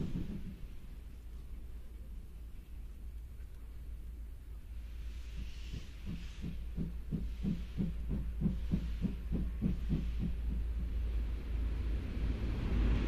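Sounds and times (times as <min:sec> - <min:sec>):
steam locomotive chuffing: 0:00.0 - 0:01.0, 0:04.8 - 0:13.0
low rumble: 0:06.6 - 0:13.0.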